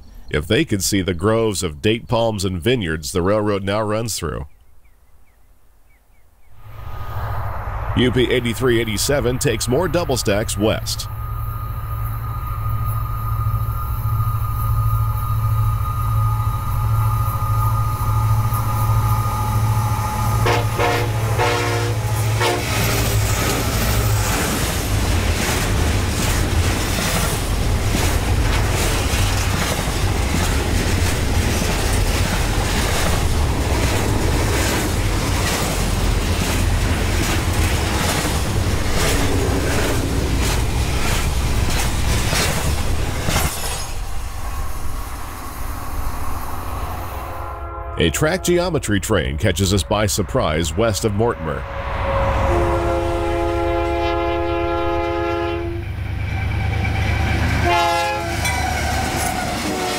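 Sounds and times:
locomotive horn: 0:10.0 - 0:23.5, 0:47.1 - 0:59.9
train wheels clicking over rail joints: 0:22.6 - 0:44.2.

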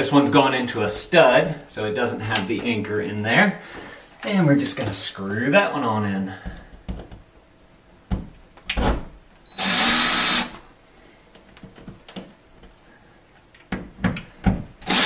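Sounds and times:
cordless drill driving screw: 0:09.6 - 0:10.6.

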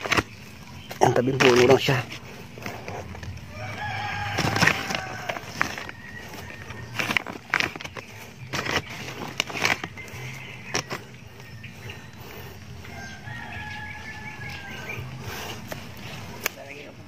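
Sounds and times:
rooster crowing: 0:03.5 - 0:07.0, 0:12.8 - 0:15.2.

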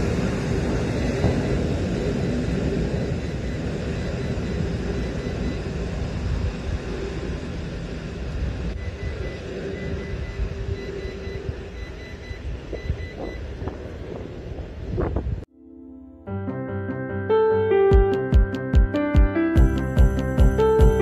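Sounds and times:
jet engines rumbling: 0:00.0 - 0:15.5.

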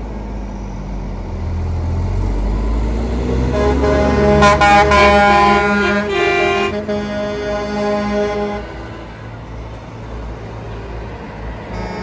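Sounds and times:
truck engines rumbling past: 0:00.0 - 0:12.0
truck air horn: 0:03.5 - 0:09.2, 0:11.6 - 0:12.0.

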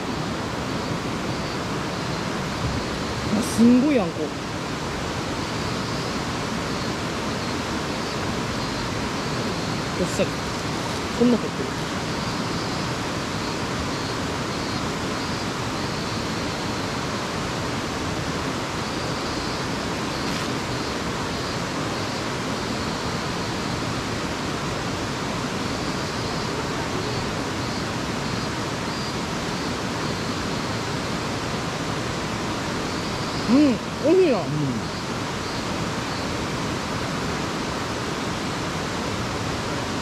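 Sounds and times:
waterfall rushing: 0:00.0 - 0:40.0.

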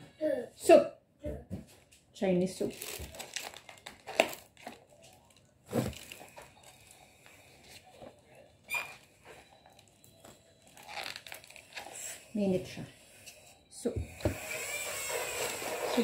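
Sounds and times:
food containers knocking and rustling: 0:02.8 - 0:06.6
short squeak: 0:08.7 - 0:09.0.

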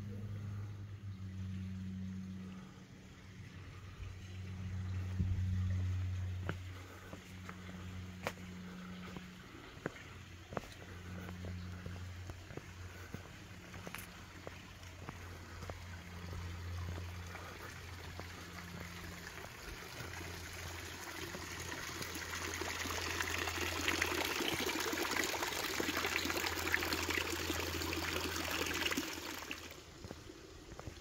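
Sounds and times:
stream water rushing: 0:16.9 - 0:30.0.

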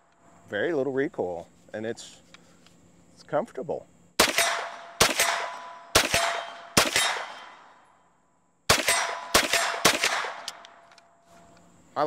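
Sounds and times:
gunshots with echo: 0:04.2 - 0:07.7, 0:08.7 - 0:10.5.

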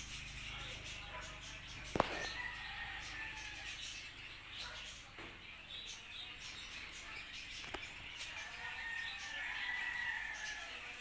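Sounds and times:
birds chirping: 0:00.0 - 0:11.0
rooster crowing: 0:02.2 - 0:03.8, 0:08.4 - 0:11.0.

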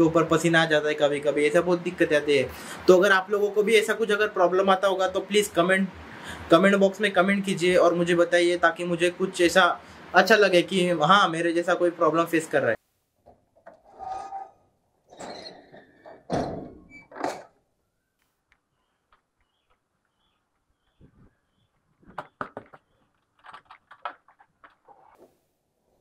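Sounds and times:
heavy metal thunk: 0:16.3 - 0:17.4
small clicks and knocks: 0:22.1 - 0:25.3.

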